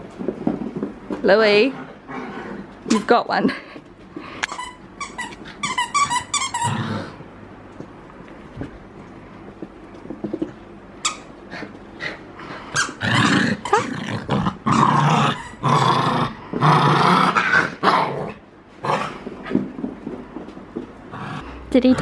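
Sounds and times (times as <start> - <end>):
dog growling in play: 1.5 - 2.9, 6.6 - 7.3, 11.5 - 19.6, 21.1 - 22.0.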